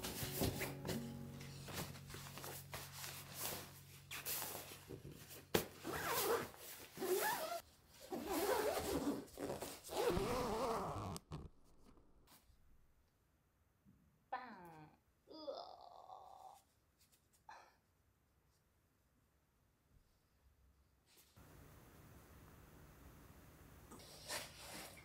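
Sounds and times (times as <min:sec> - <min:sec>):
fabric rustling: 0:00.0 - 0:11.2
zipper rasping closed: 0:05.8 - 0:11.6.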